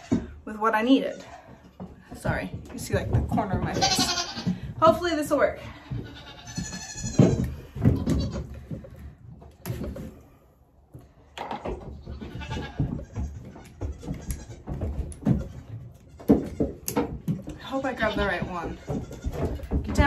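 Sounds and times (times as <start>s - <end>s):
knocks and clatter on wooden bench: 1.4s - 20.0s
goats bleating: 3.7s - 4.6s, 5.8s - 8.4s, 12.1s - 14.7s.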